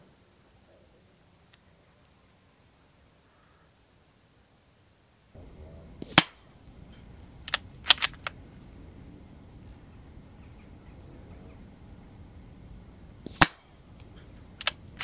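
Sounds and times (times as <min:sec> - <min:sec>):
bullet hitting steel plate: 0:06.0 - 0:07.1, 0:13.2 - 0:14.8
suppressed rifle shot: 0:06.0 - 0:08.4, 0:13.2 - 0:13.8
metallic clicks of swinging plate: 0:06.0 - 0:08.8, 0:13.2 - 0:15.0.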